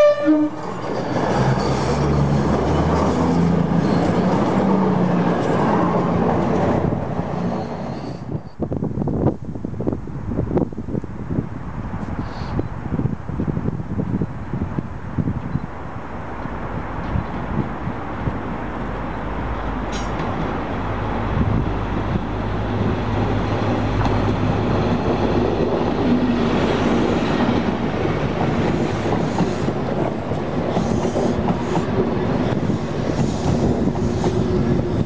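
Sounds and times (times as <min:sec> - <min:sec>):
train wheels clattering on rails: 0:00.5 - 0:06.9, 0:22.8 - 0:35.0
diesel train engine humming: 0:13.6 - 0:35.0.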